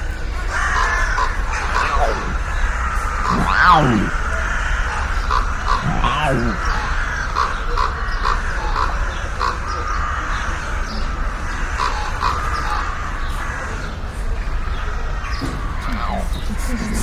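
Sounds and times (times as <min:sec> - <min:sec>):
cat short calls: 0:03.2 - 0:04.2, 0:05.8 - 0:06.6.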